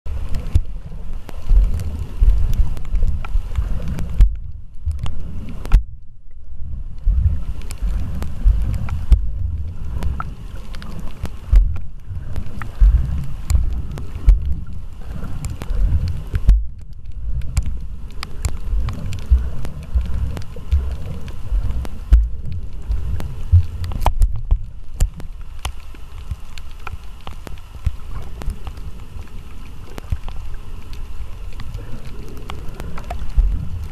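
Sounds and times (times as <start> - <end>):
faint clicks: 0.1 - 33.9.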